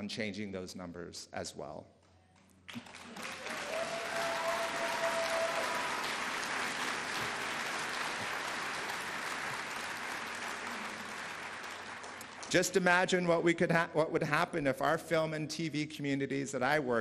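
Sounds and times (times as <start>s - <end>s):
audience applauding: 2.7s - 13.0s
long held cheer: 2.8s - 12.4s.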